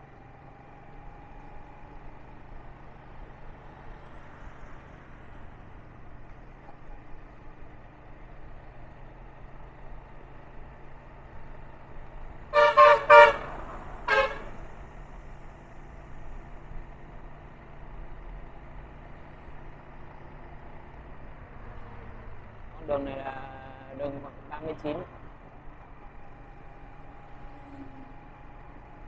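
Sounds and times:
motorbike engine and road noise: 0.0 - 29.0
vehicle horn beeps: 12.5 - 14.6.

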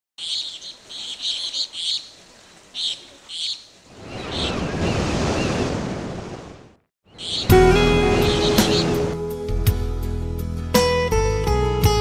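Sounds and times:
bird chirps: 0.2 - 5.6, 7.0 - 7.6, 8.2 - 9.0
sea wave rushing: 3.9 - 6.8, 7.4 - 9.3.

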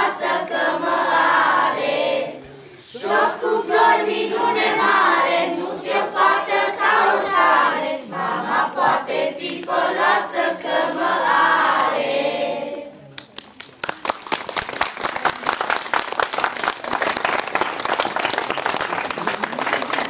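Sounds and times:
children's choir singing: 0.0 - 13.0.

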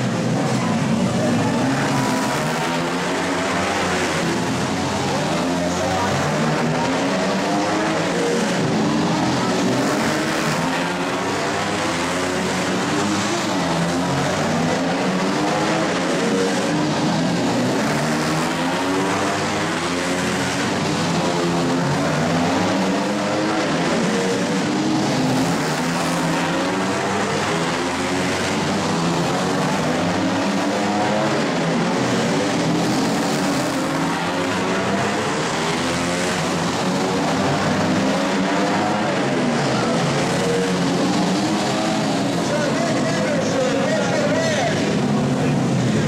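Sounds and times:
racing motorcycle engines revving: 0.0 - 46.0.

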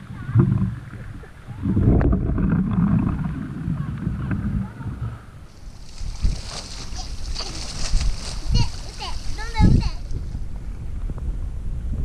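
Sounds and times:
water jets spraying on housing: 5.5 - 10.1.

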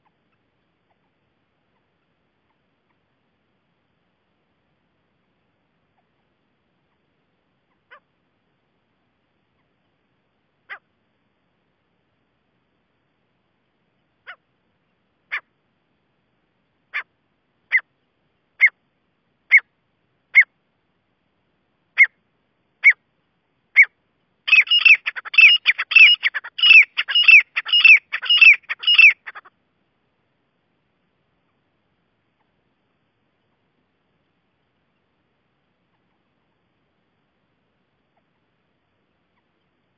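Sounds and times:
francolin calling: 17.7 - 18.8, 19.5 - 19.7, 20.3 - 20.6, 21.9 - 22.2, 22.8 - 23.0, 23.7 - 29.5.

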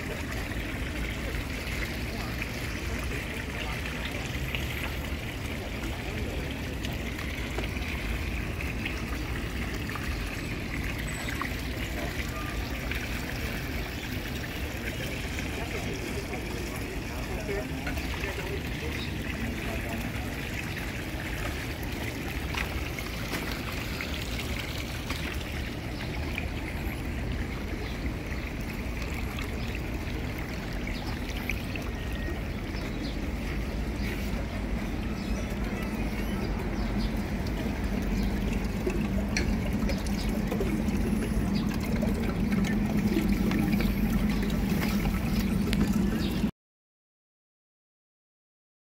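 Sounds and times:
fountain water splashing: 0.0 - 46.5.

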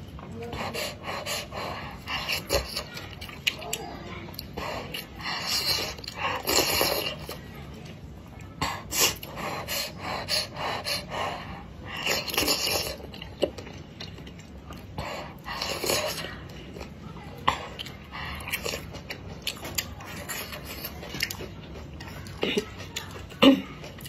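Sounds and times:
person slurping noodles: 4.6 - 7.4, 8.7 - 13.3
wet chewing and lip smacks: 11.9 - 24.0.

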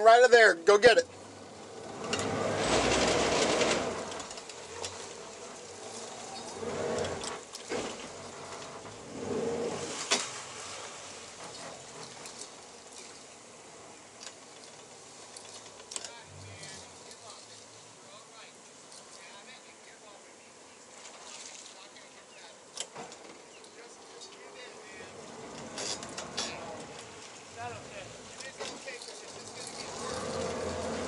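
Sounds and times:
outboard engines running: 0.8 - 18.0, 24.8 - 31.0.

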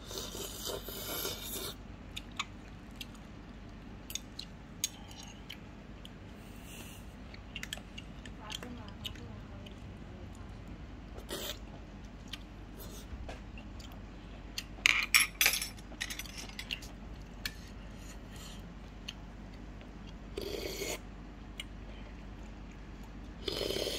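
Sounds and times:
metal utensils clinking on bowl: 14.8 - 16.8.

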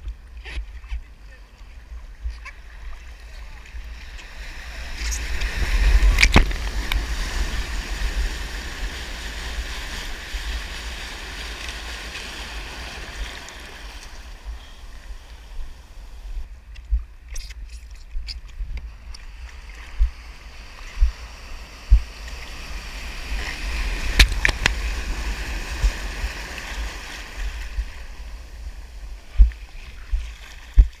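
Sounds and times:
steady low rumble: 14.4 - 22.4, 23.0 - 31.0
water splashing against camera: 29.3 - 31.0.

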